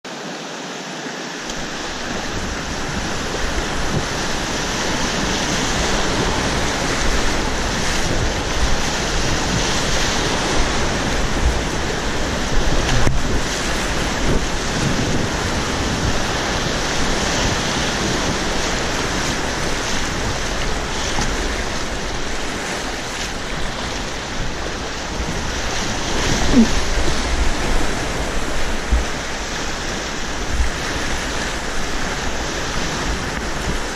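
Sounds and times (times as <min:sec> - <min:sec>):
river rapids rushing: 0:00.1 - 0:33.9
water splashing against boat: 0:00.1 - 0:33.9
wind noise on microphone: 0:01.5 - 0:33.9.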